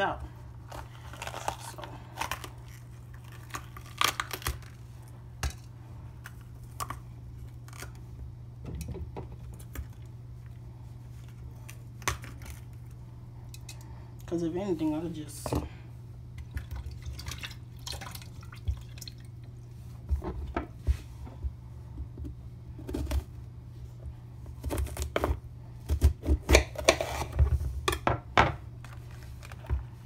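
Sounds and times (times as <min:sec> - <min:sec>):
steady low hum: 0:00.0 - 0:30.0
knife cutting bell pepper: 0:24.5 - 0:27.4.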